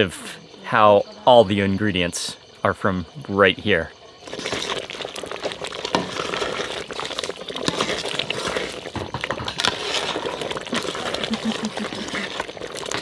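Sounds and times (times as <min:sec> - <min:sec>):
stew bubbling in a pot: 0:00.0 - 0:13.0
wood fire crackling: 0:04.0 - 0:13.0.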